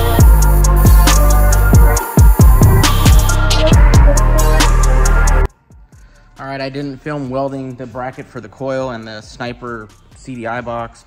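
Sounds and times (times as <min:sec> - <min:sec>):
hi-hat ticks: 0:00.0 - 0:05.4
deep bass-drum kicks: 0:00.0 - 0:05.5.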